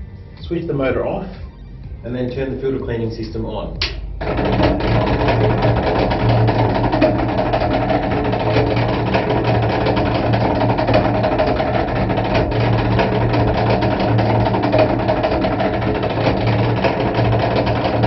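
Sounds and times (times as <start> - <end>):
rapid clatter of clicks: 3.8 - 18.0.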